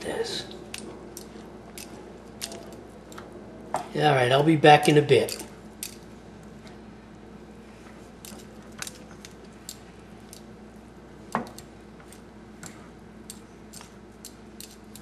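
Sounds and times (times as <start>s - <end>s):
steady low hum: 0.0s - 15.0s.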